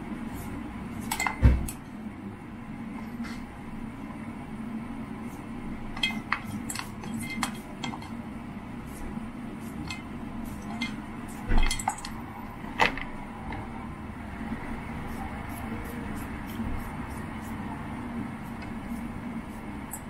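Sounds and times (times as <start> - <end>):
steady low hum: 0.0 - 20.0
clicks and clinks on a metal bowl: 11.6 - 12.2.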